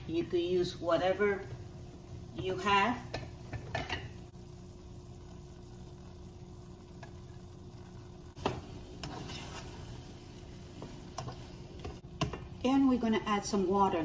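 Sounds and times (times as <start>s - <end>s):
faint sizzling in a pot: 0.0s - 14.0s
spoon knocking and scraping pot: 3.1s - 4.2s, 8.4s - 9.8s.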